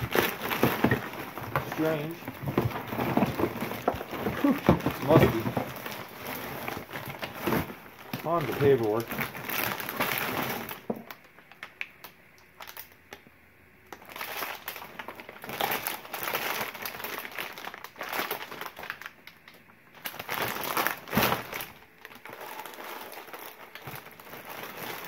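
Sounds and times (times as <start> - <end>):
paper rustling: 0.0 - 10.8.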